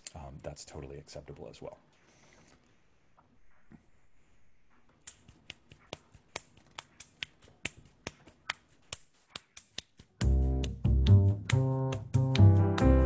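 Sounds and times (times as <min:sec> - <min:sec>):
finger snaps: 0:05.0 - 0:12.6
double bass playing: 0:10.2 - 0:13.0.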